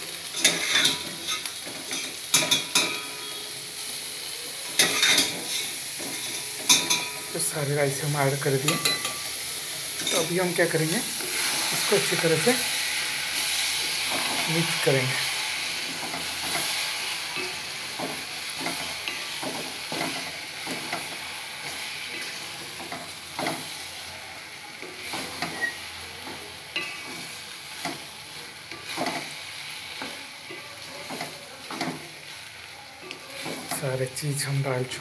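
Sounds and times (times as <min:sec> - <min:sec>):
masala sizzling: 0:00.0 - 0:35.0
spatula scraping a pot: 0:11.2 - 0:12.2.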